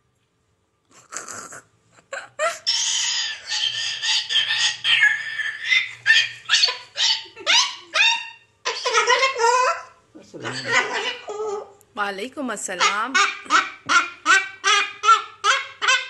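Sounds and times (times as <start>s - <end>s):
cockatoo screeching: 2.5s - 11.8s, 12.8s - 16.0s.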